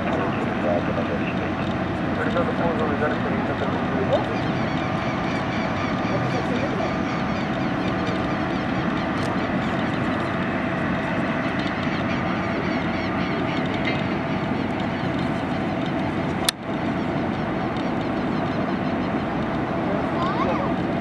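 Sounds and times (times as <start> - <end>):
distant jet engines: 0.0 - 21.0.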